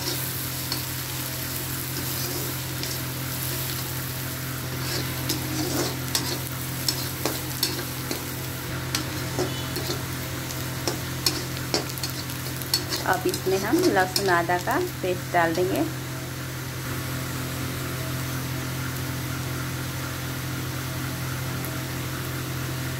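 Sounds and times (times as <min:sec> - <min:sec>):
steady low hum: 0:00.0 - 0:21.5
onions sizzling in hot oil: 0:00.0 - 0:22.9
spatula scraping and tapping pan: 0:01.9 - 0:03.8, 0:04.7 - 0:10.2, 0:10.8 - 0:14.4.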